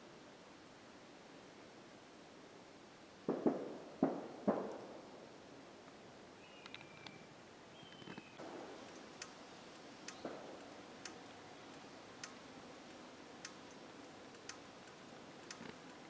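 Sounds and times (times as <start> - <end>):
steady hiss: 0.0 - 16.0
faint sharp ticks: 7.9 - 16.0.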